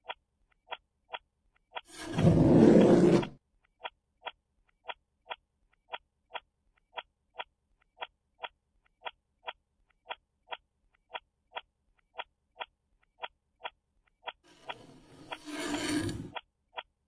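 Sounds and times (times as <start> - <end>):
clock ticking: 3.7 - 17.0.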